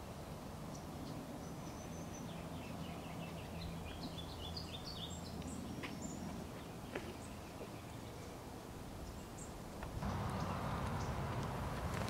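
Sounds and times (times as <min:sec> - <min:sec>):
bird chirping: 0:00.7 - 0:08.4, 0:09.0 - 0:12.0
low background rumble: 0:09.8 - 0:12.0.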